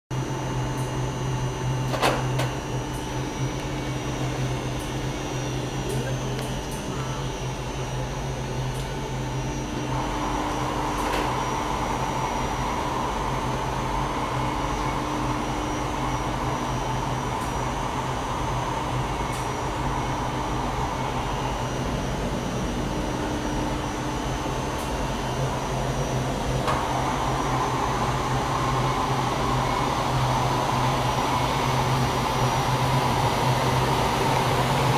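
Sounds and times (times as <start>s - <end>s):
fan drone and rushing air: 2.0s - 34.9s.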